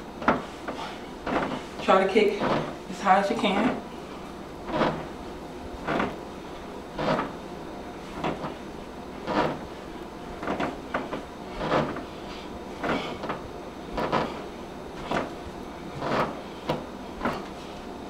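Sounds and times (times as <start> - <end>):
hard exhaled breaths: 0.4 - 1.8.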